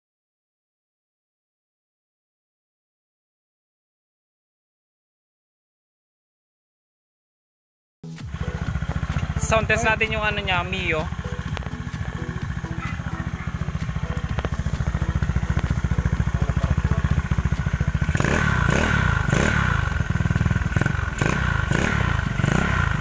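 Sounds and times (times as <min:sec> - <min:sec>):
scooter engine idling and revving: 0:08.1 - 0:23.0.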